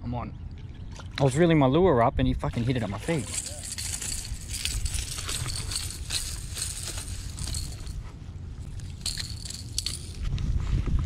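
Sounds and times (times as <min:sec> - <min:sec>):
footsteps on grassy bank: 0:03.2 - 0:10.3.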